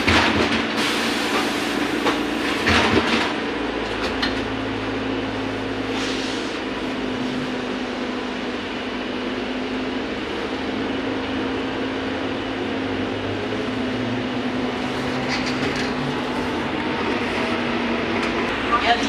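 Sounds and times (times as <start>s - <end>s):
tyre and road rumble: 13.4s - 19.0s.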